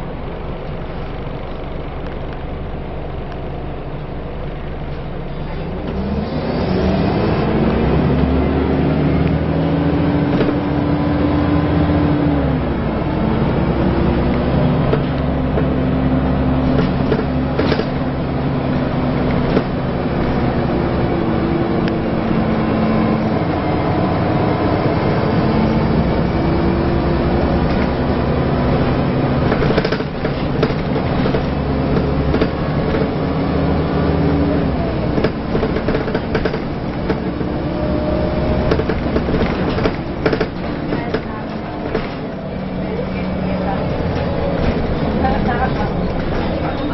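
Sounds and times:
bus engine and gearbox running: 0:00.0 - 0:46.9
road noise: 0:00.0 - 0:46.9
body rattles and knocks: 0:16.6 - 0:20.6, 0:29.0 - 0:33.3, 0:35.1 - 0:37.6, 0:38.6 - 0:42.4.

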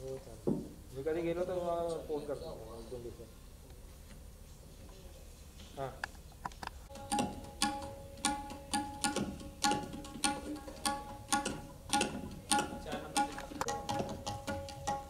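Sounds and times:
tabla strokes: 0:06.7 - 0:15.0.

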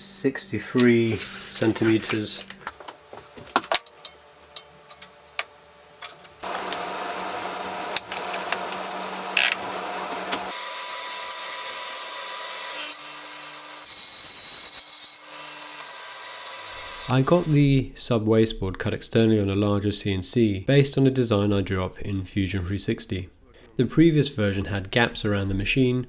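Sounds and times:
saw blade whine: 0:06.4 - 0:17.6
table saw running: 0:06.4 - 0:17.6.

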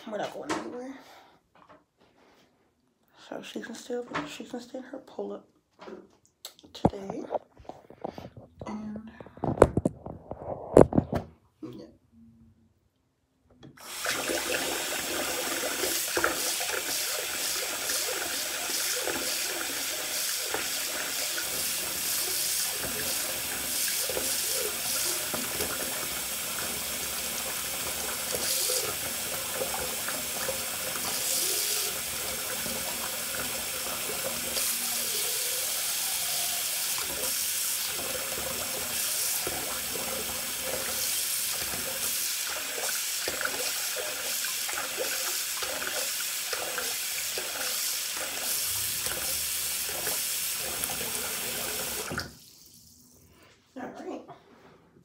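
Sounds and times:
faucet water splashing into sink: 0:13.8 - 0:52.7.

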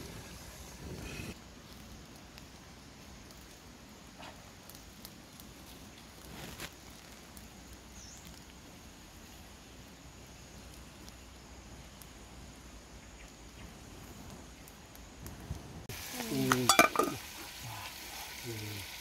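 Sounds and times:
low steady hiss: 0:00.0 - 0:19.0
small ticks: 0:01.7 - 0:08.6, 0:10.5 - 0:12.2.

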